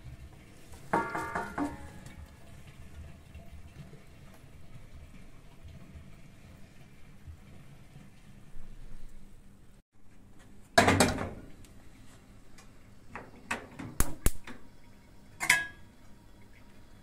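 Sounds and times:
cookware clattering: 0.9 - 2.1, 15.4 - 15.8.

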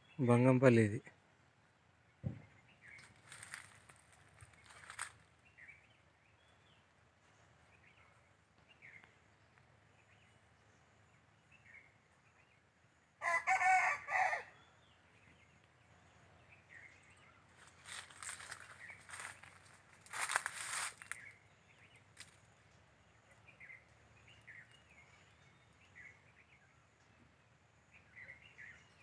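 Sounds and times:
rustling: 3.0 - 5.3, 17.8 - 21.2
rooster crowing: 13.2 - 14.6
faint bird chirps: 14.4 - 29.0.

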